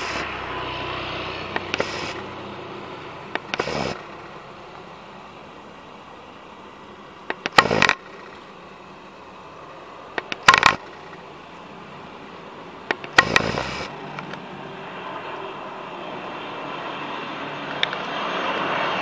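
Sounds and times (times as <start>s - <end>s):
distant turboprop aircraft drone: 0.0s - 19.0s
sharp clicks: 1.5s - 2.3s, 3.3s - 4.3s, 7.2s - 8.5s, 10.1s - 11.3s, 12.8s - 14.4s, 17.7s - 18.1s.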